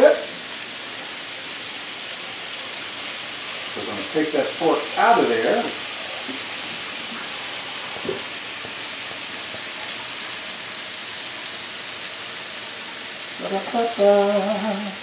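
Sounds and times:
meat sizzling in hot oil: 0.0 - 15.0
man's voice: 3.8 - 5.8.

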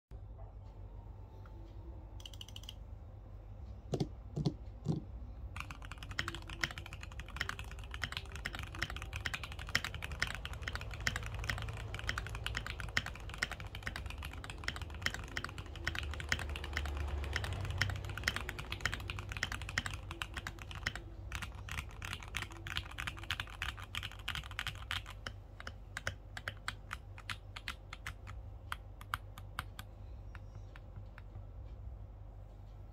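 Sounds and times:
mechanical keyboard typing: 2.2 - 2.8, 3.9 - 31.4.

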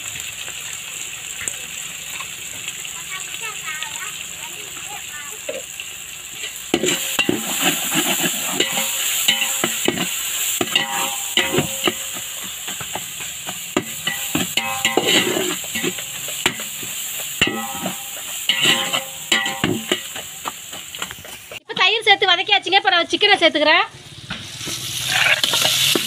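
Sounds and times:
oil sizzling: 0.0 - 22.6, 24.0 - 26.0
spatula scraping and knocking pot: 6.4 - 21.6, 25.3 - 26.0.

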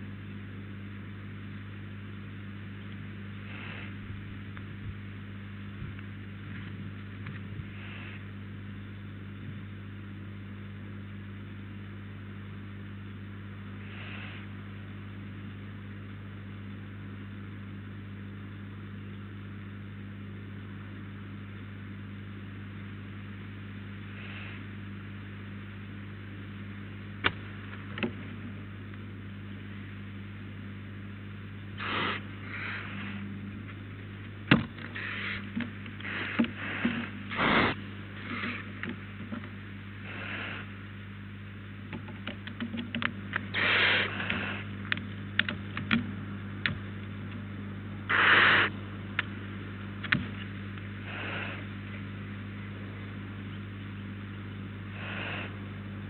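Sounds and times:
electrical hum and hiss: 0.0 - 56.0
faint short hisses: 31.8 - 33.2, 48.1 - 48.7
owl claws scraping wood: 31.8 - 33.2, 34.7 - 38.8, 43.5 - 44.7, 48.1 - 48.7.

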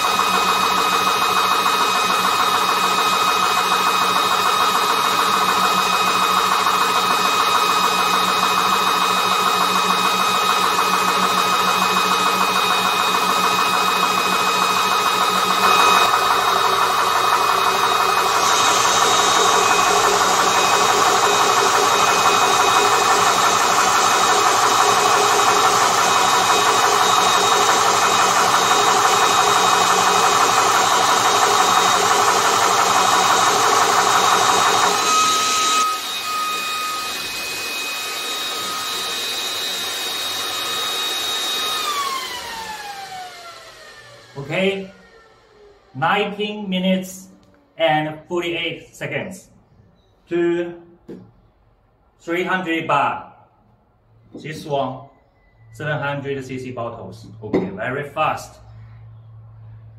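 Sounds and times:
air compressor pumping: 0.0 - 46.0
motor hum with steady tones: 0.0 - 46.0.

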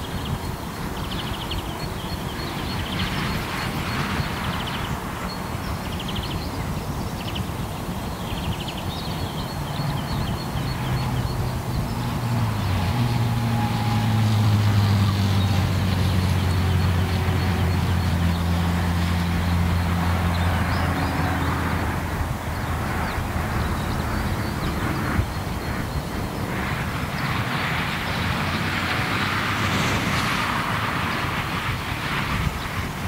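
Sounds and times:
motorway traffic rushing: 0.0 - 33.0
heavy vehicle engine drone: 7.5 - 33.0.

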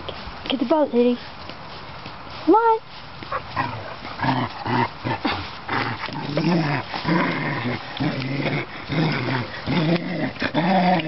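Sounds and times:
dog growling: 3.3 - 11.0.

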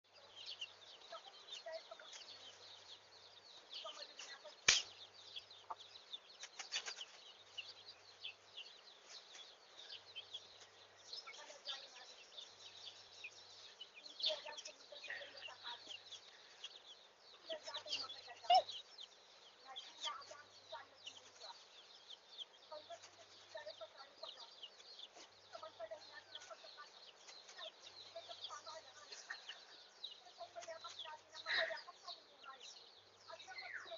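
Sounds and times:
birds chirping: 0.0 - 33.9
sharp click: 4.6 - 4.9.

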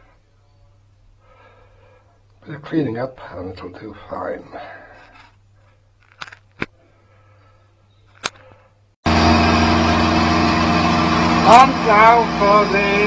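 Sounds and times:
small lathe motor running: 9.1 - 13.0.

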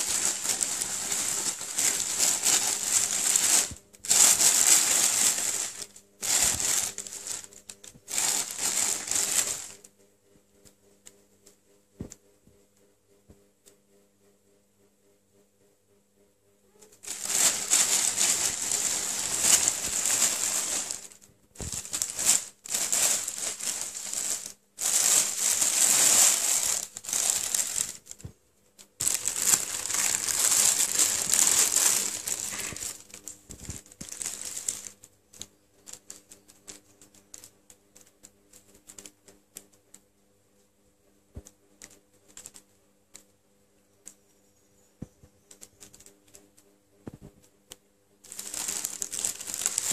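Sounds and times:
plastic bag crinkling: 0.0 - 9.9, 17.0 - 37.4, 48.3 - 49.9.

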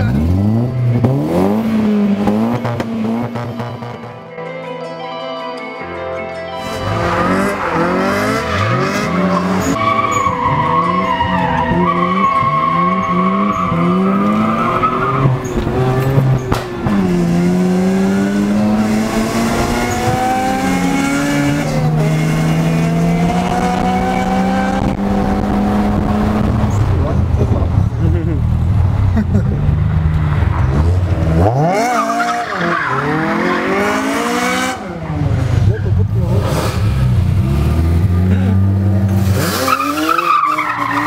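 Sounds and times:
car engine revving: 0.0 - 4.2, 6.6 - 41.0
tires squealing: 6.6 - 25.6, 29.8 - 34.8, 39.0 - 41.0.

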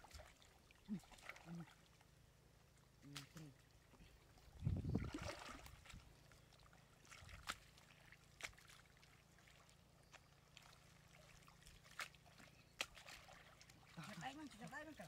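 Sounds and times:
quiet low hum: 0.0 - 15.0
water drips and splashes: 0.0 - 15.0.

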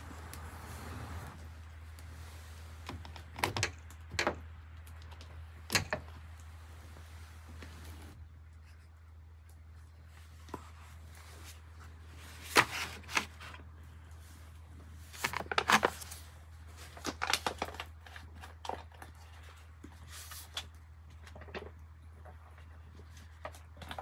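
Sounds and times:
steady low hum: 0.0 - 15.2
clicks and rustles of handling: 1.3 - 24.0.

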